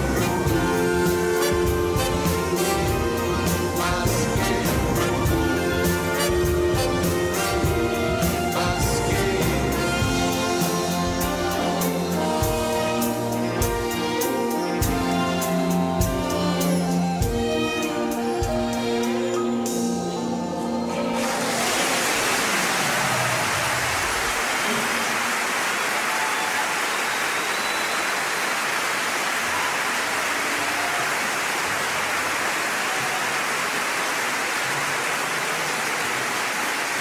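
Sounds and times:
large audience applauding: 0:21.1 - 0:37.0.

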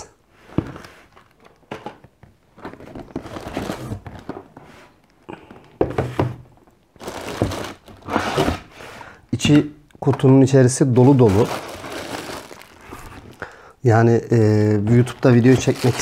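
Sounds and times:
cardboard packaging rustling: 0:00.5 - 0:05.3, 0:06.5 - 0:08.7, 0:10.9 - 0:13.6, 0:14.6 - 0:16.0
boxes thunking on a table: 0:05.8 - 0:06.6, 0:07.2 - 0:08.7.

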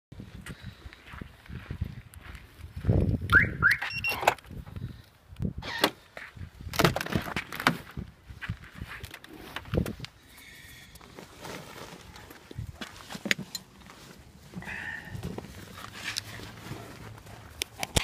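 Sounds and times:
car alarm chirps: 0:03.4 - 0:04.2
brief beep: 0:03.4 - 0:04.3.

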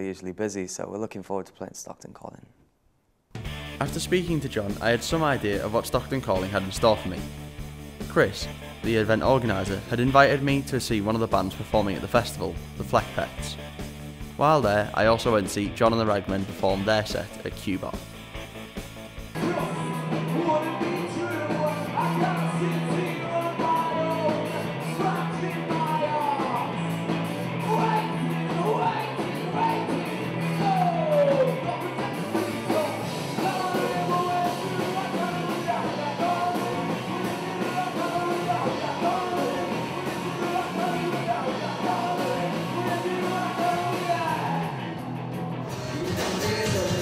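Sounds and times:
rock band playing live: 0:03.4 - 0:15.6, 0:16.2 - 0:47.0
person singing: 0:19.4 - 0:44.8, 0:45.6 - 0:47.0.

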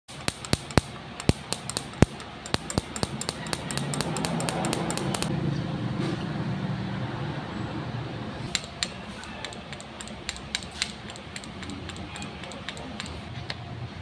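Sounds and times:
ignition sparks snapping: 0:00.1 - 0:05.3.

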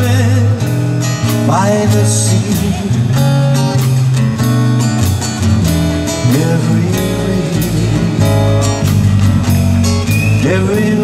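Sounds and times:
strummed guitar: 0:00.0 - 0:11.0
sustained bass notes: 0:00.0 - 0:11.0
person singing: 0:06.1 - 0:08.9, 0:10.4 - 0:11.0.

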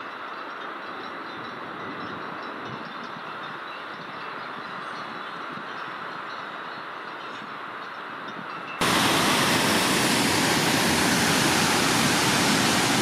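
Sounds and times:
waterfall rushing over rocks: 0:08.8 - 0:13.0.

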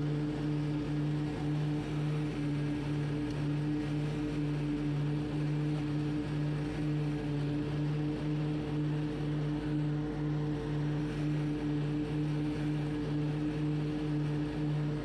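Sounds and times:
mower engine droning: 0:00.0 - 0:15.0.

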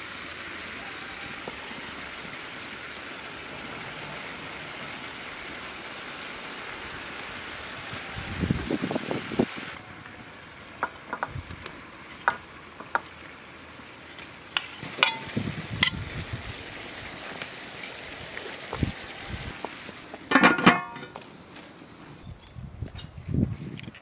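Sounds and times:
food simmering and sizzling in pot: 0:00.0 - 0:21.2
metal spoon clinking on pot: 0:14.6 - 0:15.3.

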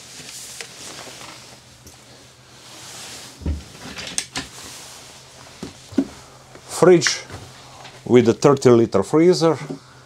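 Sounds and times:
cupboard door shutting thump: 0:03.4 - 0:03.7.

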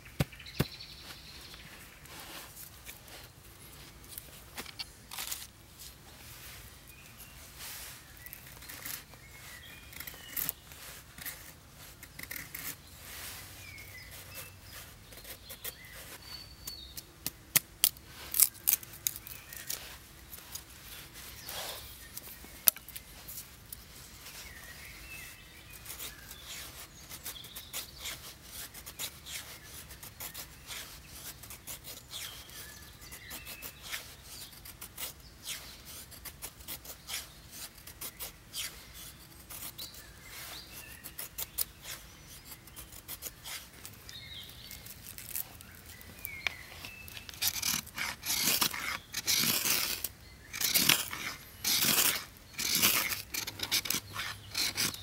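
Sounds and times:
birds chirping: 0:00.0 - 0:03.2, 0:38.1 - 0:55.0
knife scraping wooden stick: 0:06.4 - 0:17.0, 0:17.8 - 0:55.0.

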